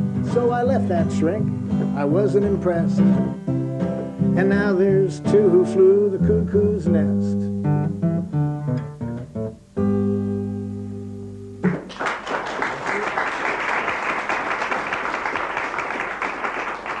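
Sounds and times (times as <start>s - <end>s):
acoustic guitar: 0.0s - 12.8s
audience applauding: 11.6s - 17.0s.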